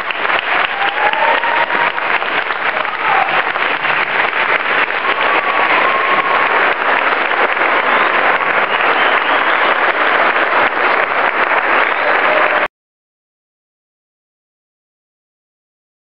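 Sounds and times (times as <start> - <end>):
large audience clapping: 0.0 - 12.7.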